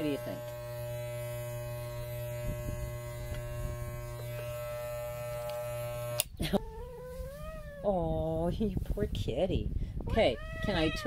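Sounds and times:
electric clippers buzzing: 0:00.0 - 0:06.5.

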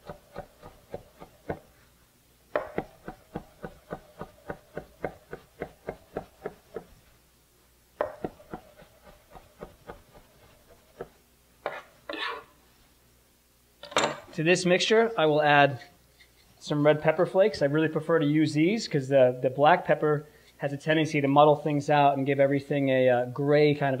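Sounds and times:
knife chopping on plastic board: 0:00.0 - 0:01.7, 0:02.5 - 0:07.0, 0:08.0 - 0:11.8.

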